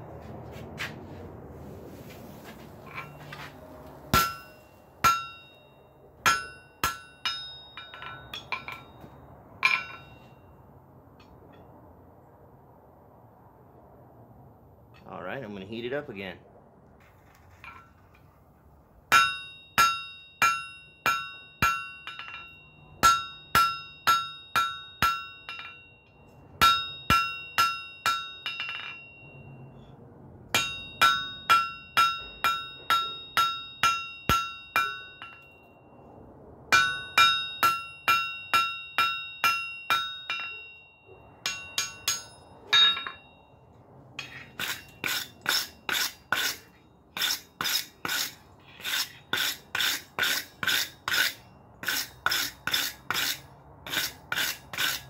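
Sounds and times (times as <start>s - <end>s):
hammer ringing on anvil: 4.1s - 10.5s, 19.1s - 29.7s, 30.5s - 35.8s, 36.7s - 43.6s
wire brush scrubbing steel: 44.2s - 55.0s.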